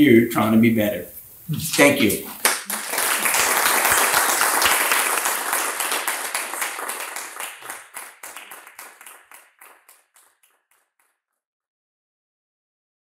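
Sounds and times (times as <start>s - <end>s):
audience applauding: 2.3s - 10.8s.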